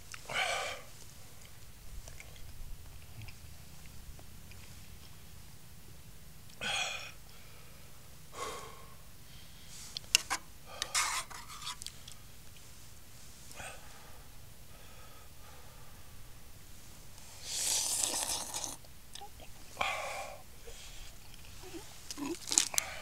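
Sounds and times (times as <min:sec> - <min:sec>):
breathy puffs of air: 0:06.6 - 0:10.0.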